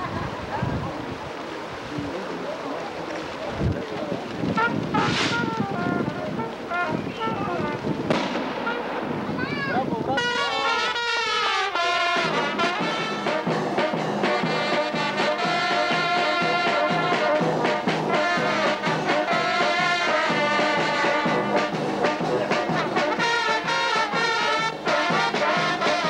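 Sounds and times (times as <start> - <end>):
brass band playing: 4.4 - 26.0
steady drum beat: 4.4 - 26.0.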